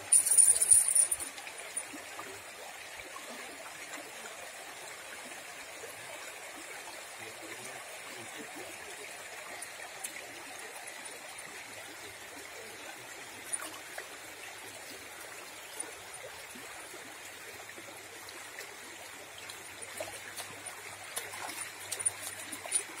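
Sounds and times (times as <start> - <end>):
river running over stones: 0.0 - 23.0.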